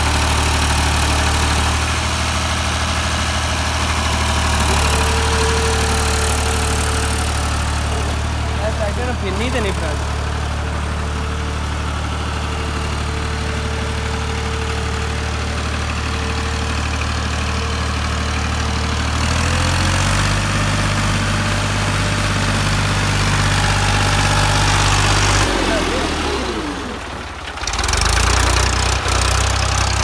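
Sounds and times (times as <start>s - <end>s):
tractor diesel engine running: 0.0s - 30.0s.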